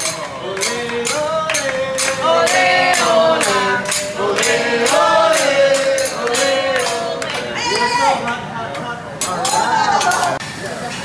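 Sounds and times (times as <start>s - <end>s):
steady percussive beat: 0.0s - 8.5s
people singing: 0.0s - 9.0s.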